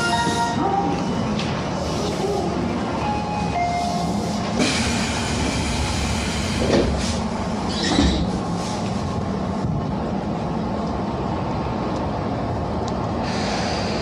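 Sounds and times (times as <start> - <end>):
train wheels and motors rumbling: 0.0 - 14.0.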